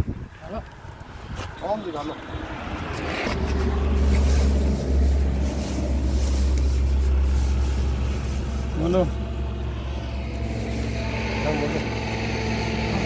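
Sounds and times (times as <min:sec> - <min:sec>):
wind buffeting microphone: 0:00.0 - 0:08.7.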